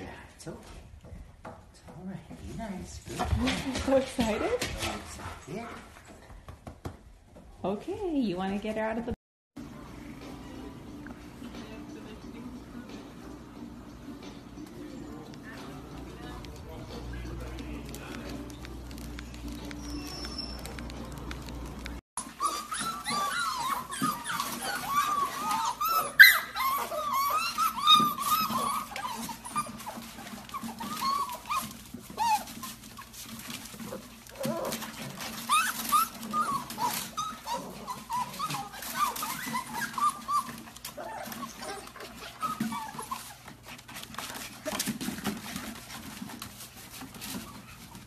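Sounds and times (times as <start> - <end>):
puppies whimpering and yipping: 14.0 - 48.0.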